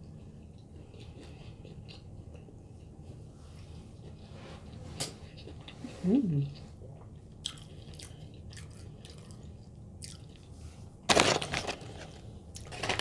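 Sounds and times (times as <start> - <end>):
person chewing: 0.0 - 3.2, 6.6 - 10.6
crunching: 11.1 - 13.0.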